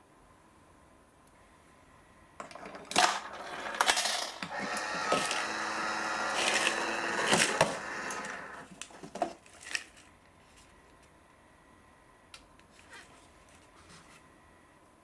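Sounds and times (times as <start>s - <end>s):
vending machine whirring: 2.4s - 9.2s.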